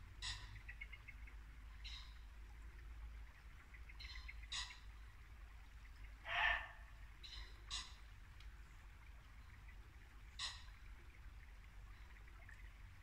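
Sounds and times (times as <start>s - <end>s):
bird ticking calls: 0.2s - 2.3s, 3.4s - 5.1s, 5.9s - 8.6s, 9.2s - 12.7s
deer barking: 6.2s - 6.8s.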